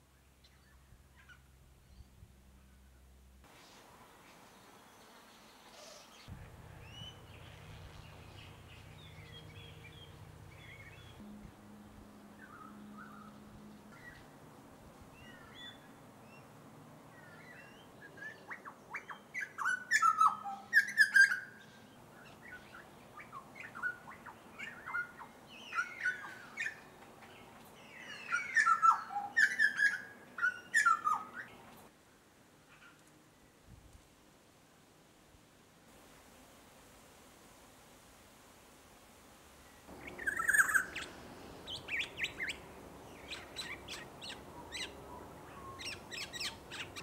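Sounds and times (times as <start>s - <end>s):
low steady hum: 0.0s - 18.1s, 35.9s - 47.0s
bird singing piping notes: 4.7s - 16.6s, 17.2s - 27.0s, 27.8s - 31.6s, 39.9s - 47.0s.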